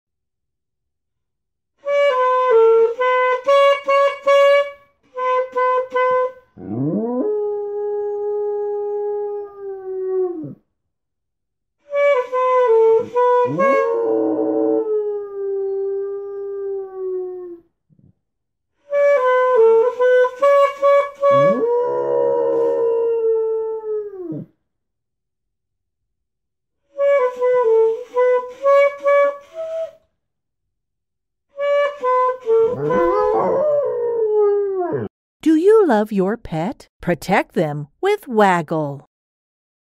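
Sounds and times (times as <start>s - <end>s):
saxophone playing quick notes: 21.3s - 21.6s
dog howling: 21.3s - 23.5s, 32.7s - 35.1s.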